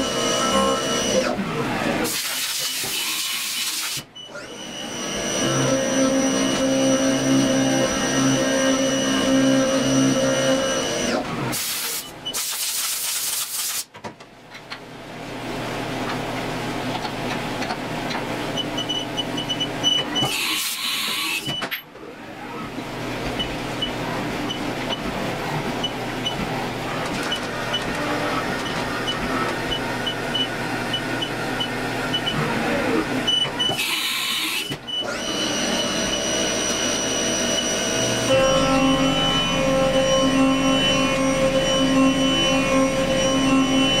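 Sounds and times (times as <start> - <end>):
milling machine hum: 0.0 - 2.2, 2.8 - 11.6, 22.0 - 44.0.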